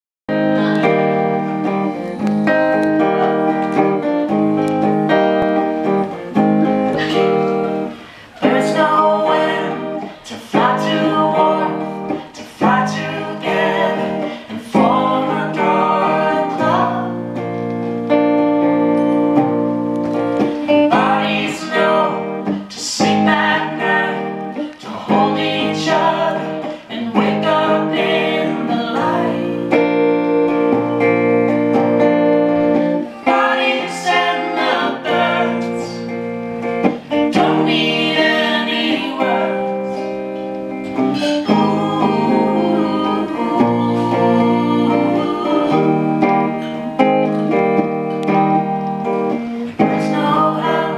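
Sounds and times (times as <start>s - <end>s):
guitar strumming chords: 0.3s - 50.9s
woman singing: 6.9s - 17.5s, 20.4s - 31.0s, 32.5s - 36.2s, 36.8s - 40.2s, 40.8s - 47.6s, 49.3s - 50.9s.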